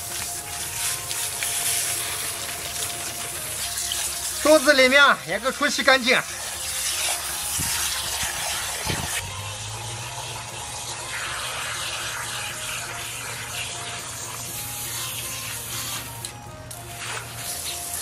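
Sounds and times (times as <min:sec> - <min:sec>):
water rushing and splashing: 0:00.0 - 0:18.0.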